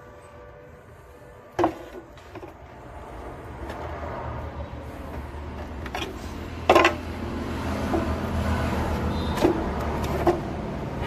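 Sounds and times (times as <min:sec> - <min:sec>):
hard plastic knocks and clacks: 0:05.8 - 0:07.1.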